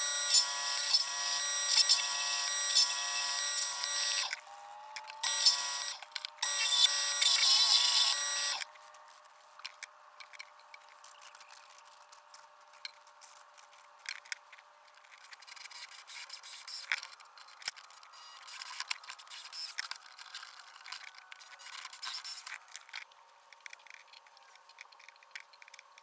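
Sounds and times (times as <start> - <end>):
drill press motor running: 0.0 - 8.7
metal parts clicking and tapping: 16.8 - 26.0.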